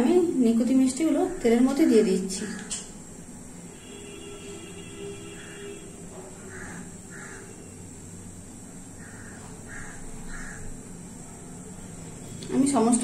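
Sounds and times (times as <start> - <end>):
faint steady background noise: 0.0 - 13.0
crow cawing: 6.4 - 7.7, 9.0 - 10.8.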